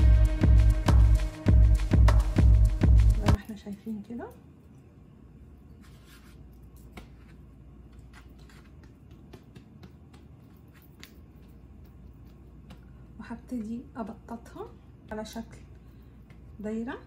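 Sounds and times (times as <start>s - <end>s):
low steady hum: 0.0s - 17.0s
hands patting dough on wood: 6.8s - 14.0s, 15.0s - 17.0s.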